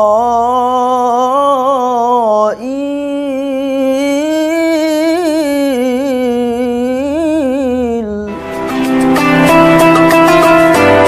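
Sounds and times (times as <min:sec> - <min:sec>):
man reciting melodically: 0:00.0 - 0:08.6.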